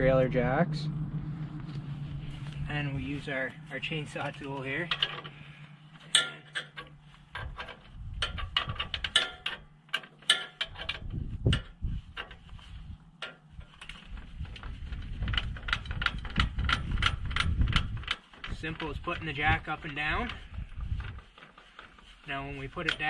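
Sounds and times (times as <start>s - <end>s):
low rumble: 0.0s - 9.1s, 10.9s - 21.2s
jack cranking metallic clicks: 4.1s - 12.4s, 13.2s - 20.4s.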